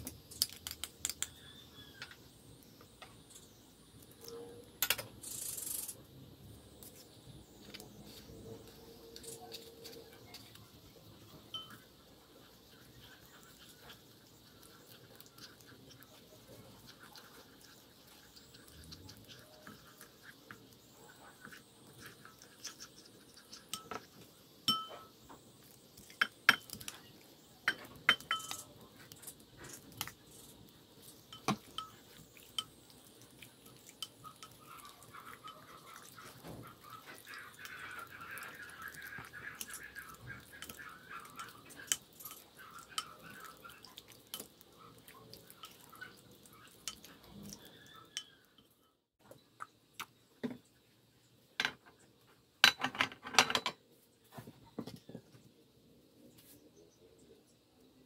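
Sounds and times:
wet stirring: 0:06.7 - 0:49.0
spoon clinking on glass bowl: 0:11.4 - 0:11.9, 0:23.5 - 0:25.2, 0:27.7 - 0:28.7, 0:31.3 - 0:32.8.

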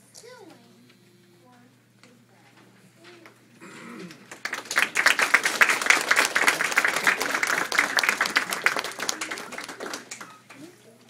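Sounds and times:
children clapping: 0:04.1 - 0:10.7.

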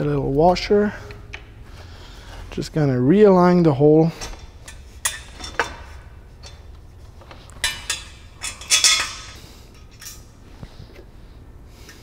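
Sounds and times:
metal parts clinking: 0:04.2 - 0:10.4
ringing metal clatter: 0:07.6 - 0:10.2.

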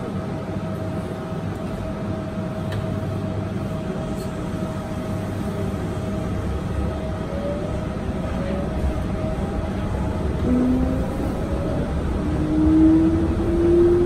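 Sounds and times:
constant whine: 0:00.0 - 0:14.0
train tyres rumbling: 0:04.0 - 0:14.0.

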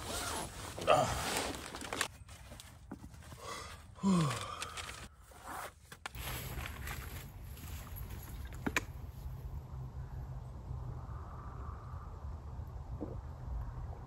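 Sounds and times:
sleeping bag rustling: 0:00.0 - 0:08.6
man groaning: 0:00.8 - 0:01.3, 0:04.0 - 0:04.6.

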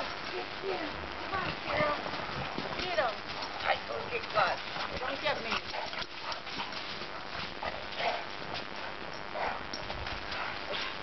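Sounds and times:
dogs barking: 0:04.4 - 0:11.0.

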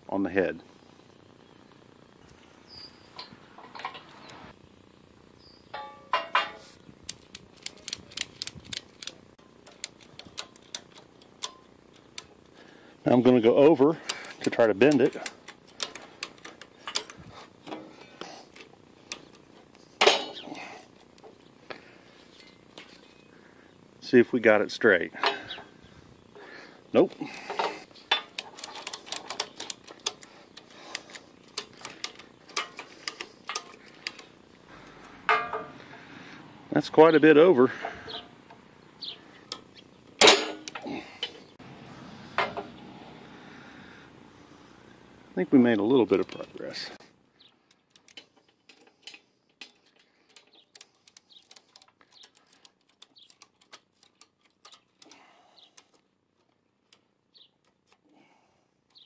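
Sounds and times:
sharp irregular clicks: 0:07.0 - 0:12.3, 0:14.0 - 0:17.2, 0:27.5 - 0:34.3, 0:47.7 - 0:58.1.

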